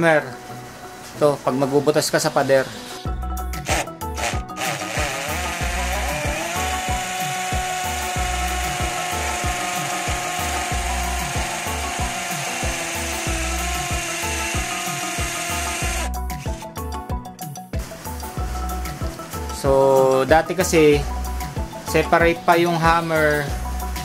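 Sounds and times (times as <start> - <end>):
cordless drill motor whining: 3.6 - 16.6.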